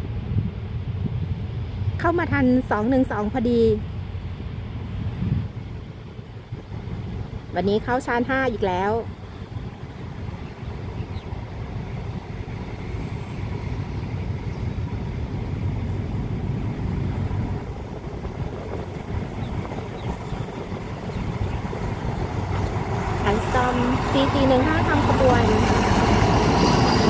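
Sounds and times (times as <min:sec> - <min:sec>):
locomotive engine rumble: 0:00.0 - 0:27.0.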